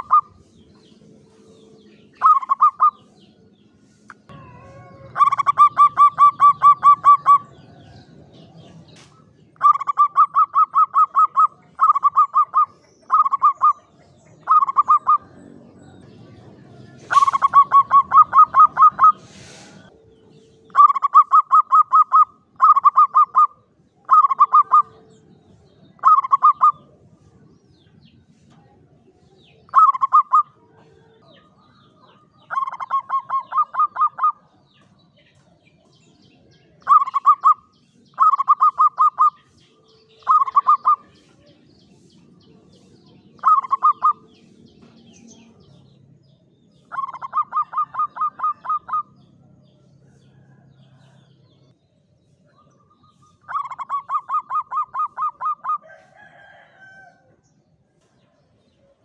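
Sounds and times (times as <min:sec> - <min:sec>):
dove cooing: 0:00.0 - 0:00.4, 0:02.2 - 0:03.0, 0:04.3 - 0:07.7, 0:09.6 - 0:15.4, 0:17.1 - 0:25.2, 0:26.0 - 0:26.9, 0:29.7 - 0:31.2, 0:32.5 - 0:34.5, 0:36.9 - 0:37.6, 0:38.2 - 0:39.4, 0:40.2 - 0:41.1, 0:43.4 - 0:44.3, 0:46.9 - 0:49.2, 0:53.5 - 0:56.0.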